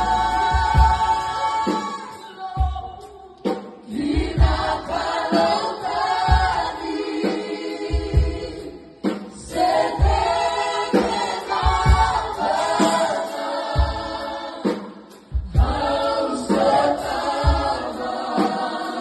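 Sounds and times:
choir singing a hymn: 0.0s - 19.0s.

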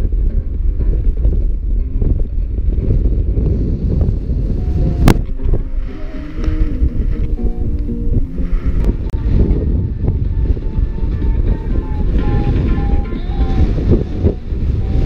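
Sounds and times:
wind buffeting microphone: 0.0s - 15.0s
faint music from small speaker: 4.6s - 15.0s.

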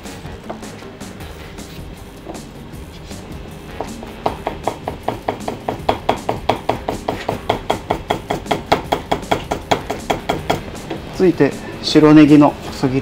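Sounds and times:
knife chopping on cutting board: 1.6s - 11.1s.

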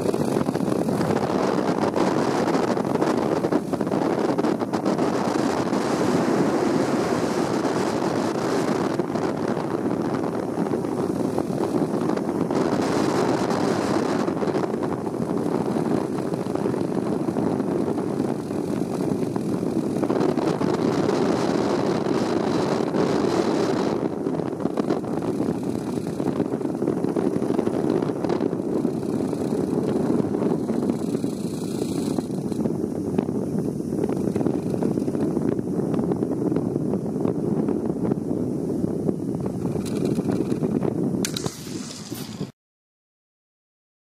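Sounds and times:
wind on microphone: 0.0s - 42.6s
trolley rumbling along cable: 24.0s - 33.3s.

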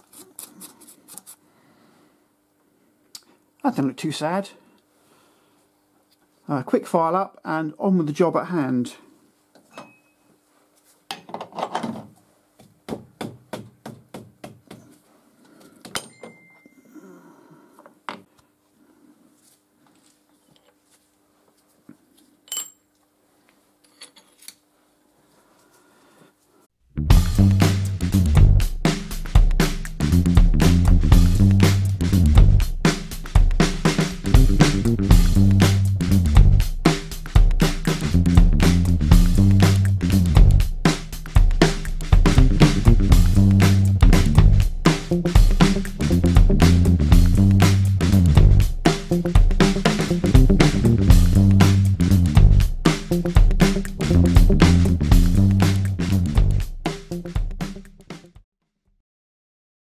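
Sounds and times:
bass line: 26.9s - 58.0s
drum kit beat: 27.0s - 58.4s.

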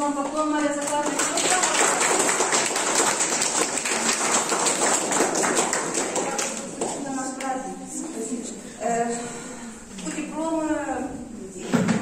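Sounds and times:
audience applauding: 0.9s - 6.8s.

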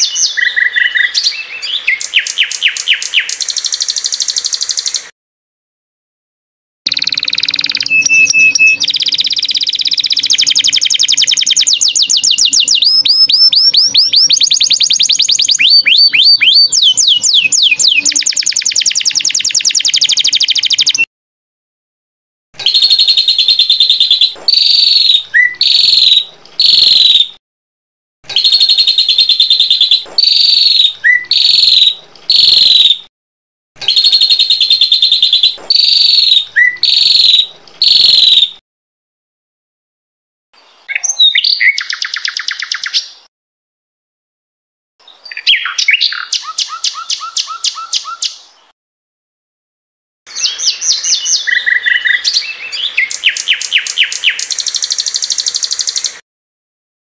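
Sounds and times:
high whistled bird chirps: 0.0s - 5.1s, 6.9s - 21.1s, 22.6s - 27.4s, 28.3s - 33.0s, 33.8s - 38.5s, 40.8s - 43.2s, 45.2s - 48.4s, 50.3s - 56.2s
rapid high bird trilling: 6.9s - 21.0s, 28.3s - 33.0s.

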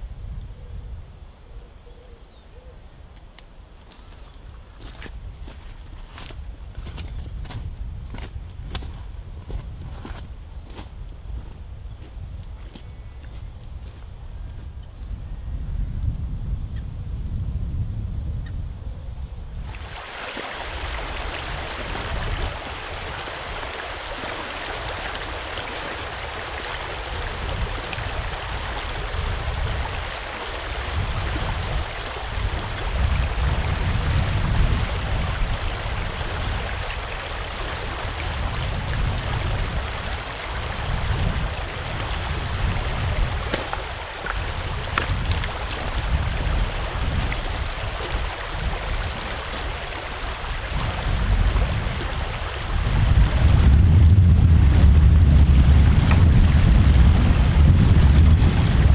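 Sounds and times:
river water rushing over stones: 19.6s - 53.7s
low rumble: 52.8s - 58.9s.

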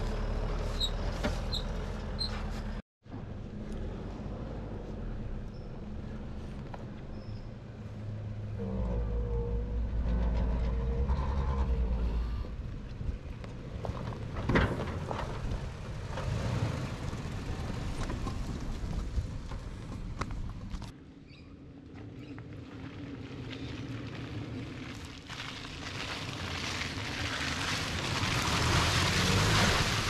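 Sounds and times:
engine labouring at low revs: 0.0s - 20.2s, 27.8s - 30.0s
tyres crunching over dirt: 22.0s - 30.0s.

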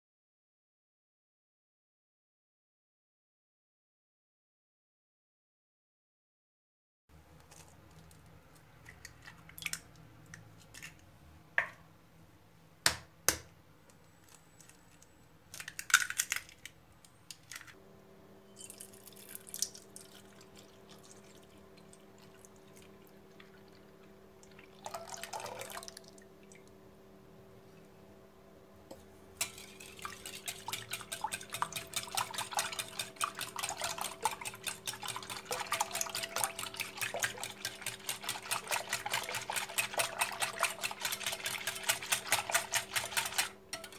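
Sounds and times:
liquid pouring: 18.6s - 26.7s, 29.4s - 43.5s
whisk beating batter in glass bowl: 29.4s - 43.9s.

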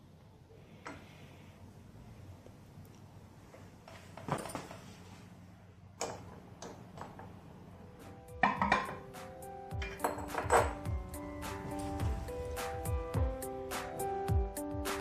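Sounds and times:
glass bottles clinking: 8.4s - 9.1s, 9.8s - 10.8s.

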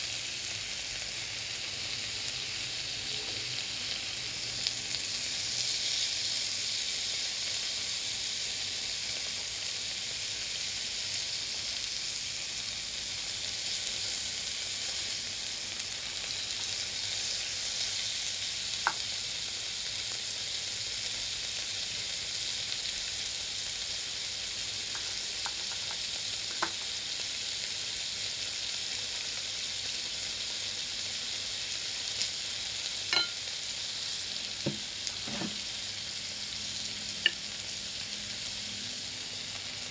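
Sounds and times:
meat sizzling on grill pan: 0.0s - 39.9s
chopsticks tapping pan: 26.6s - 26.8s, 33.1s - 33.4s.

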